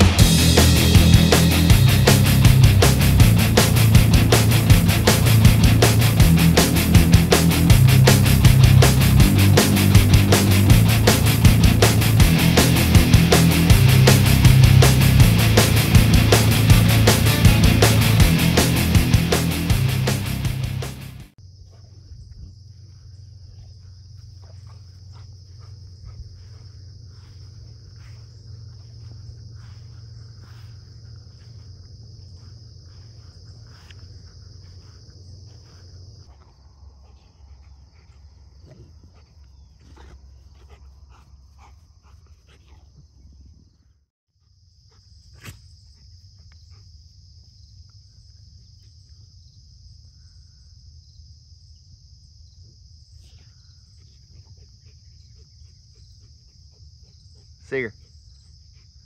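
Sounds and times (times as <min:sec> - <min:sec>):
crickets droning: 0:21.3 - 0:59.0.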